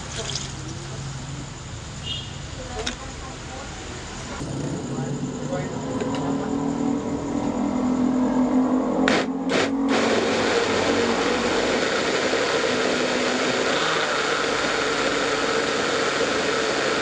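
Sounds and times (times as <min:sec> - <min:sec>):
electric blender running: 0:09.1 - 0:17.0.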